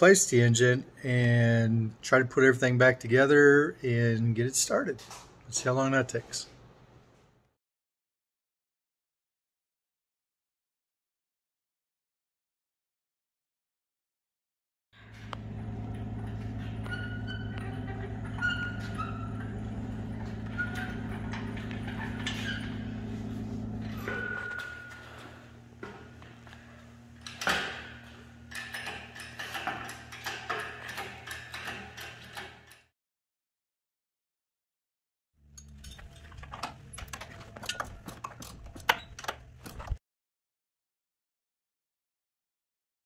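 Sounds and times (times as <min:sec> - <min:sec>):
steady low hum: 0:15.0 - 0:30.8.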